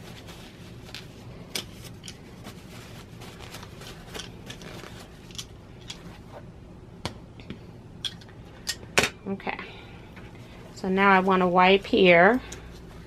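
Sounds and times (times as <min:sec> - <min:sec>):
tissue rustling: 0:00.0 - 0:06.5, 0:10.4 - 0:13.0.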